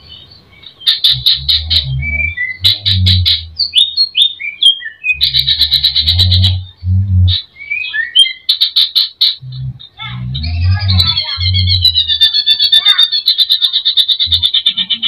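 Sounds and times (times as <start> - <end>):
bird singing trills and whistles: 0.0 - 15.0
low thuds: 1.1 - 3.6, 5.2 - 7.4, 9.4 - 11.9.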